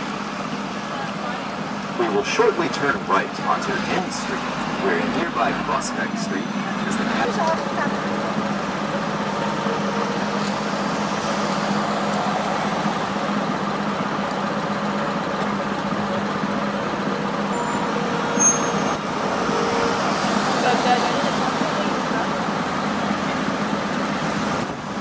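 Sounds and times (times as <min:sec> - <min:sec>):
heavy vehicle engine hum: 0:00.0 - 0:25.0
street traffic: 0:00.0 - 0:25.0
high squeak: 0:17.5 - 0:20.1.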